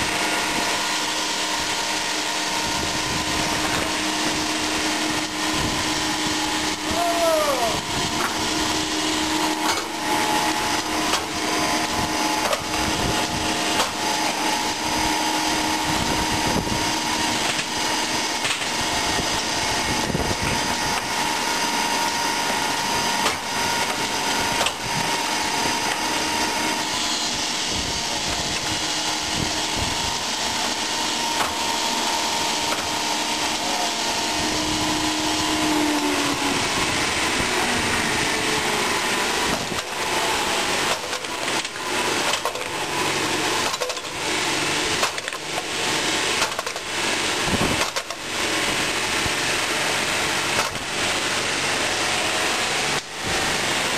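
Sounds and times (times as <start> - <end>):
stone cutting machine running: 0.0 - 53.9.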